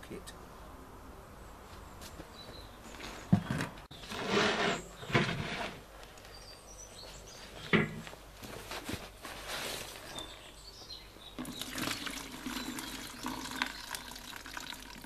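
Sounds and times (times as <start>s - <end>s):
footsteps scuffing on concrete: 1.7s - 3.6s.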